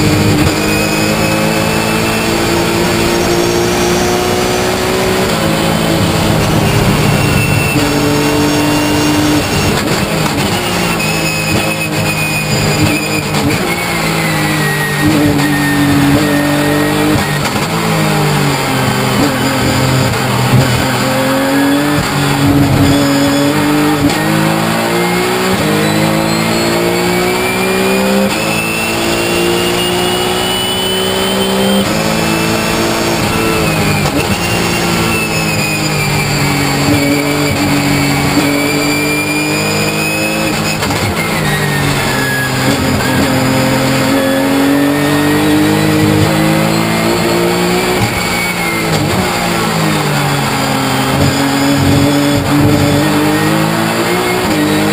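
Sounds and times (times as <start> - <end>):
high whine: 0.0 - 54.6
race car engine revving: 0.0 - 54.9.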